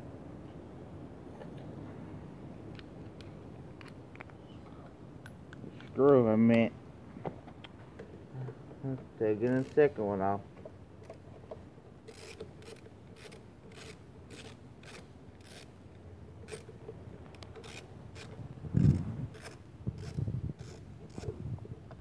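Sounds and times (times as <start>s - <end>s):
ratchet wrench clicking: 12.1s - 15.7s, 16.4s - 16.7s.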